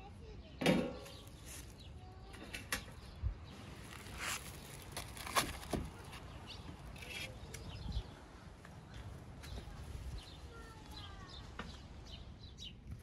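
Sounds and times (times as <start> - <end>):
aluminium foil crinkling: 3.7 - 6.2.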